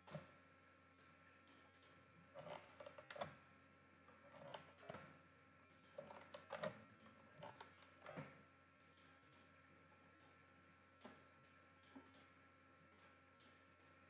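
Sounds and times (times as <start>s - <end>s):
faint steady hum: 0.0s - 14.0s
mouse and keyboard clicks: 5.8s - 8.3s.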